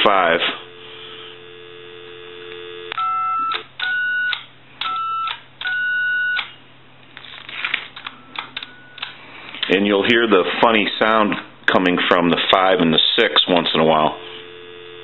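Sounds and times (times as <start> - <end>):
telephone dial tone: 0.7 - 6.5, 8.0 - 9.2, 14.3 - 15.0
touch-tone keypad beeps: 3.0 - 6.4, 8.1 - 9.1.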